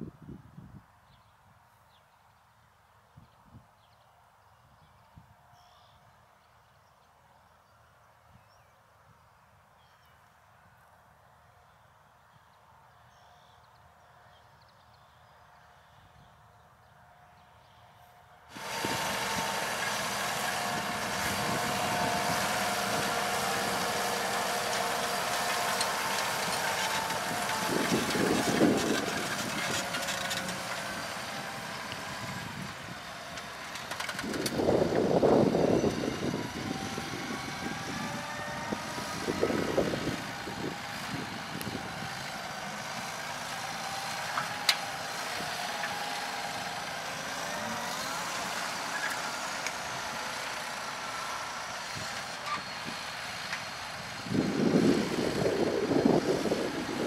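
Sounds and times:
tractor engine running under load: 18.5 - 57.0.

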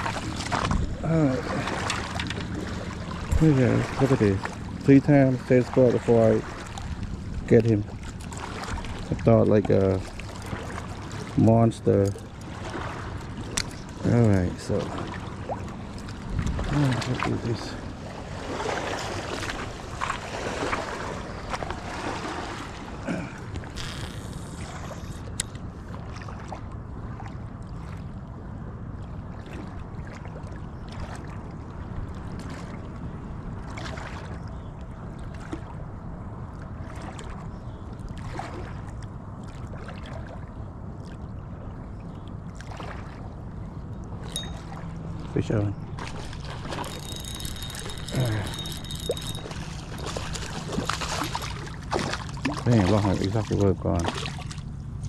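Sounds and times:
boat engine low hum: 0.0 - 55.0
water: 0.0 - 55.0
wind noise: 16.2 - 17.1.

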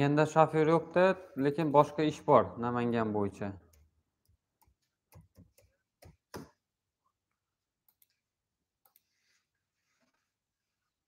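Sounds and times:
computer mouse clicks: 7.8 - 8.2, 8.8 - 9.2.

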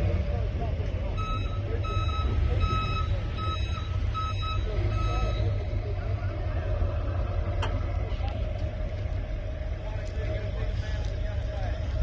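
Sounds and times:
vehicles idling rumble: 0.0 - 12.0
reversing alarm beeping: 1.1 - 5.7.

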